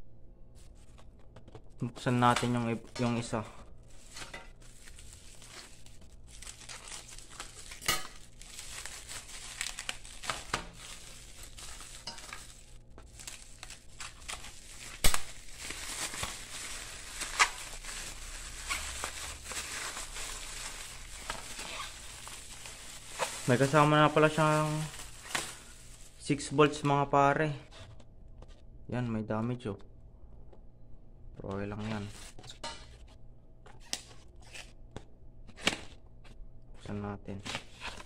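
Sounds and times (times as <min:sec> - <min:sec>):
plastic packaging crinkling: 0:00.6 - 0:26.9, 0:37.4 - 0:38.0.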